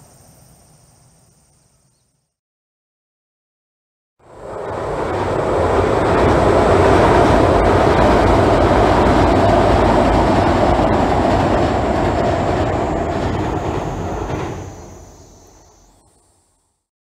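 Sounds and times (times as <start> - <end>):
train wheels rumbling on rails: 4.2 - 16.0.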